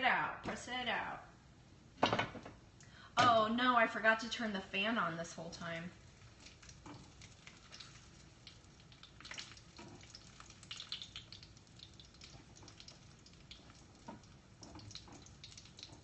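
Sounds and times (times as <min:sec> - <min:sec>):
grease sizzling in a frying pan: 0:05.9 - 0:16.0.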